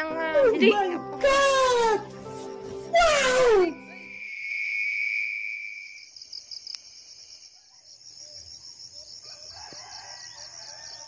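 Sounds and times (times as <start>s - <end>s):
insect trill: 4.0s - 11.0s
rooster crowing: 9.2s - 11.0s.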